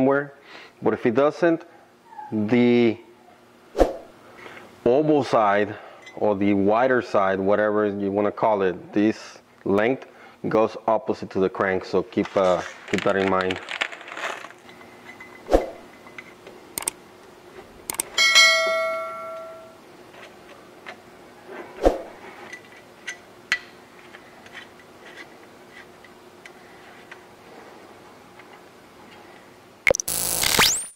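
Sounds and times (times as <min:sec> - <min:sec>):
ringing metal clink: 0:18.2 - 0:19.8.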